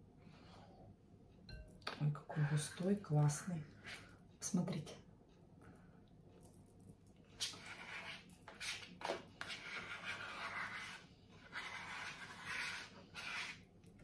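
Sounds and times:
spoon scraping plastic tub: 0:07.4 - 0:14.0.

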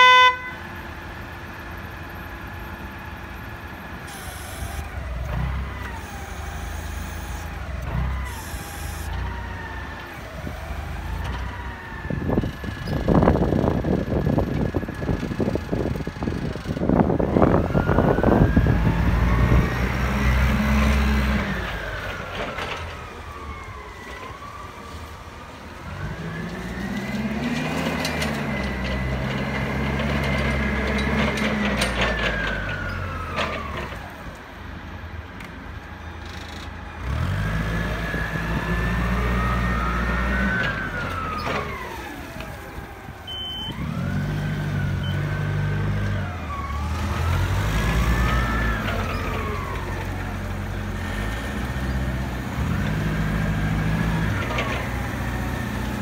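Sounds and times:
forklift engine revving: 0:03.6 - 0:23.1, 0:25.8 - 0:34.2, 0:36.6 - 0:56.0.

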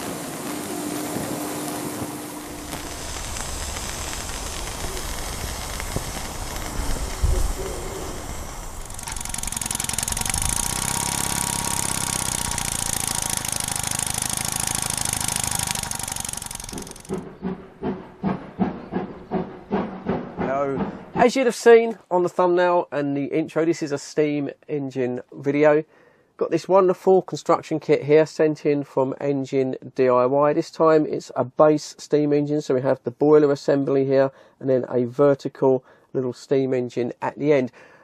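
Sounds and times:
steam engine hissing: 0:00.0 - 0:21.4
quick rhythmic sound: 0:01.4 - 0:21.6
low thump: 0:17.1 - 0:21.2.

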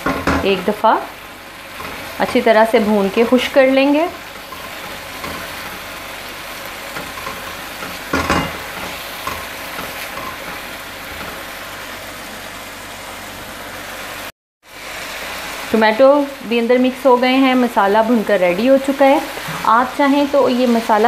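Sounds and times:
food sizzling in a pan: 0:00.0 - 0:21.0
spatula scraping a pan: 0:01.7 - 0:11.6, 0:19.3 - 0:19.8.

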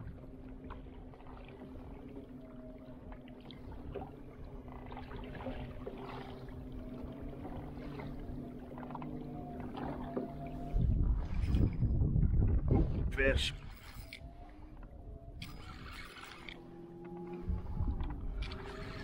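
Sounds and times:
pedal drive whirring: 0:13.8 - 0:19.0.

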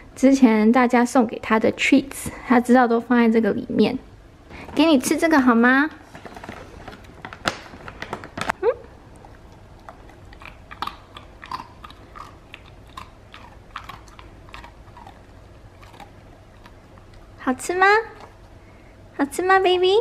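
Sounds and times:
dog crunching a hard biscuit: 0:06.1 - 0:17.4.

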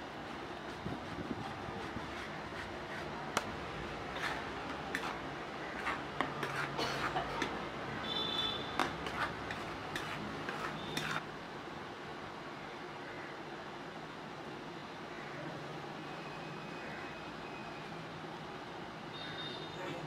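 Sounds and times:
metal spatula scraping griddle: 0:04.0 - 0:07.5, 0:08.8 - 0:11.2.

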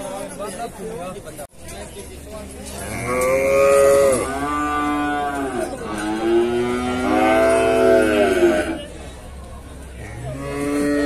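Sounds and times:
cow mooing loudly: 0:02.8 - 0:08.8, 0:10.1 - 0:11.0.

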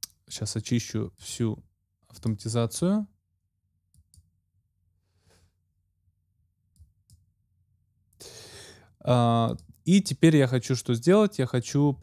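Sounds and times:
computer mouse clicks: 0:03.9 - 0:04.3.

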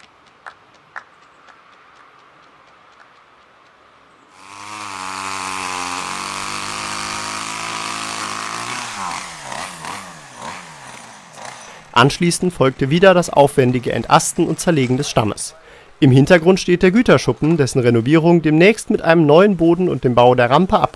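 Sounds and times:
chainsaw revving: 0:04.3 - 0:15.0.

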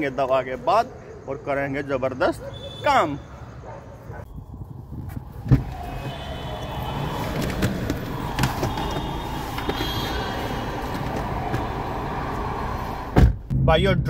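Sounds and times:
traffic noise: 0:00.0 - 0:13.6.

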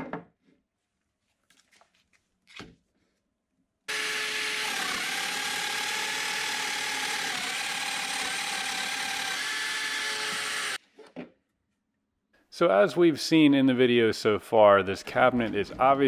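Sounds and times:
power joiner cutting wood: 0:03.9 - 0:10.8.

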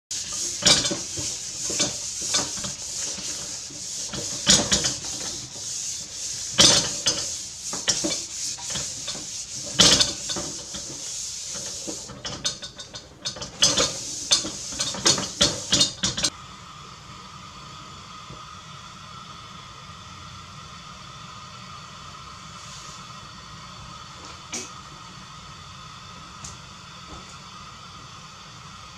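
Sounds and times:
paper towel rubbing metal wok: 0:00.1 - 0:16.3
steady hum: 0:00.1 - 0:28.9.

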